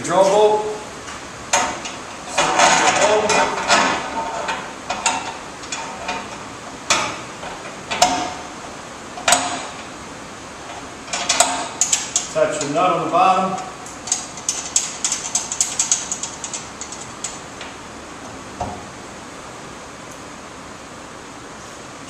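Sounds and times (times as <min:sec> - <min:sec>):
metal bolt clinking: 0:01.5 - 0:08.5, 0:10.7 - 0:12.8.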